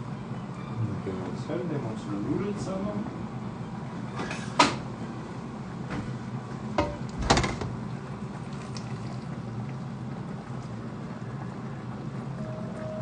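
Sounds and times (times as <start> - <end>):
steady low hum: 0.0 - 13.0
utensils knocking on steel pots: 6.8 - 7.6.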